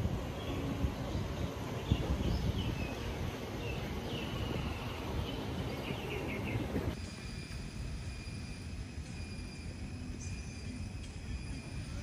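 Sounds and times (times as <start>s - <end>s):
birds chirping: 0.0s - 7.0s
steady high-pitched hum: 0.0s - 12.0s
wind rumble on microphone: 0.0s - 12.0s.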